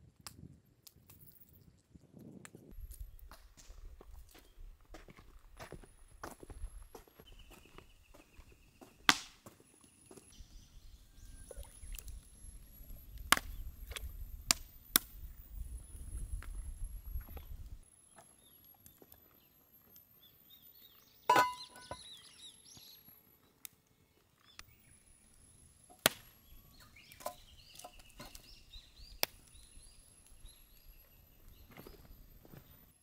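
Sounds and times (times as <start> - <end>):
faint bird chirps: 7.2 - 25.7
firewood knocking: 21.3 - 22.0, 27.1 - 28.5
metal pot clattering: 21.3 - 22.0.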